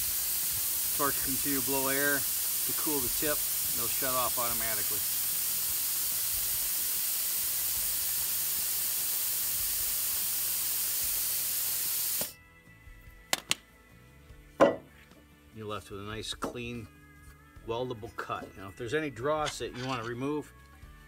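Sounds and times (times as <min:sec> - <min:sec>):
plasma torch air hiss: 0:00.0 - 0:12.4.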